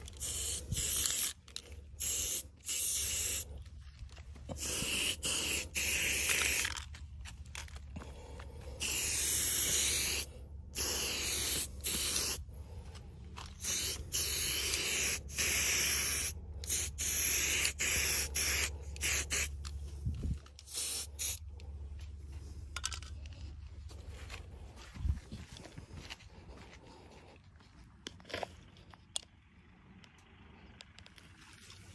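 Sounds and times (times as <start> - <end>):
spray paint can hissing: 0.0 - 1.4, 2.0 - 3.6, 4.6 - 6.8, 8.8 - 12.4, 13.6 - 19.6, 20.6 - 21.4.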